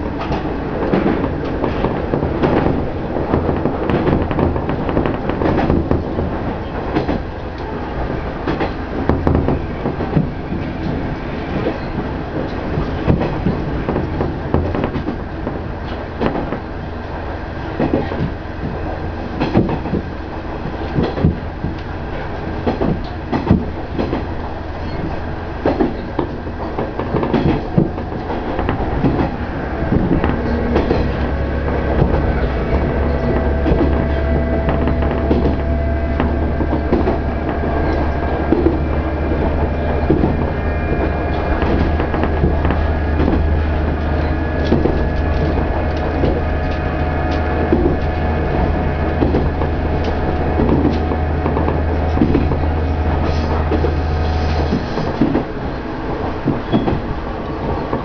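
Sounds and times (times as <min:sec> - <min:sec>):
wheels clicking on rail joints: 0:00.0 - 0:58.0
steady whine: 0:23.1 - 0:58.0
diesel engine drone: 0:27.5 - 0:58.0.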